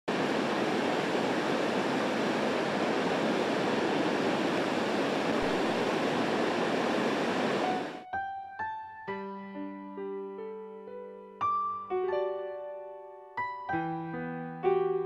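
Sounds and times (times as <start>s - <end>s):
waterfall rushing: 0.1s - 8.0s.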